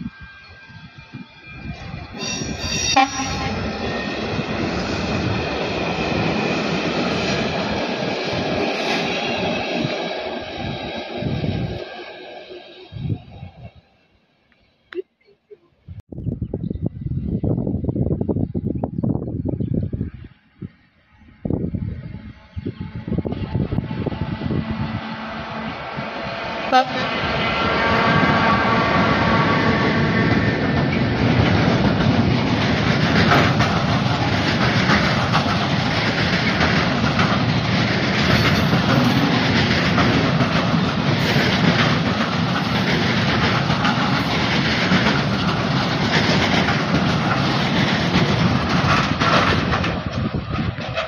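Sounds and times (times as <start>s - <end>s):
electric locomotive passing: 0.0s - 14.5s, 17.0s - 51.0s
train wheels clacking over rail joints: 27.7s - 51.0s.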